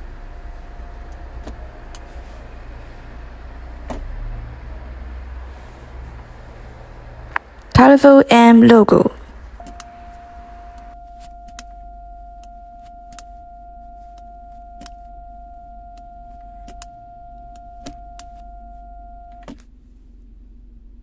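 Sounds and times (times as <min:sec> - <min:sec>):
steady high tone: 0:00.0 - 0:19.4
gear selector lever clicking: 0:09.6 - 0:10.0, 0:16.6 - 0:16.9.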